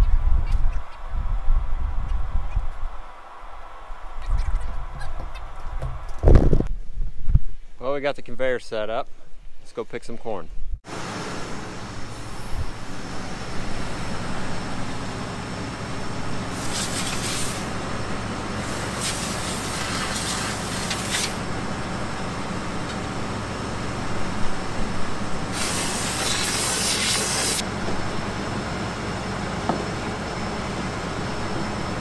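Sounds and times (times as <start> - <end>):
steady machine hum: 10.9 - 32.0
compressed air hissing from hose: 16.5 - 17.8, 18.6 - 21.4, 25.5 - 27.6.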